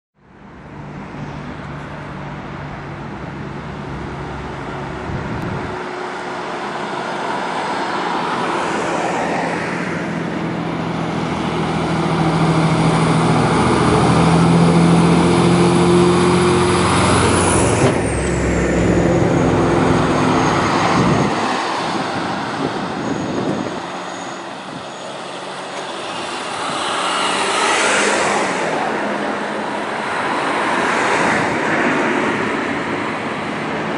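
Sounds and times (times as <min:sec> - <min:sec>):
diesel truck passing: 0:00.2 - 0:33.9
smaller vehicle passing: 0:00.3 - 0:33.9
high whine dropping in pitch: 0:11.0 - 0:29.4.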